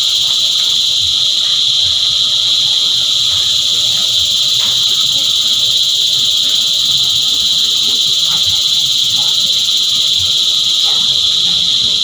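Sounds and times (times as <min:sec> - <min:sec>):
cicadas buzzing: 0:00.0 - 0:12.0.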